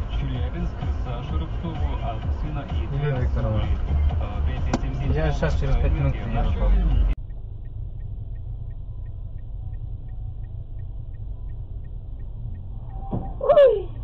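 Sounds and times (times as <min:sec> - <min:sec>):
car driving low rumble: 0:00.0 - 0:14.0
faint regular ticking: 0:07.1 - 0:14.0.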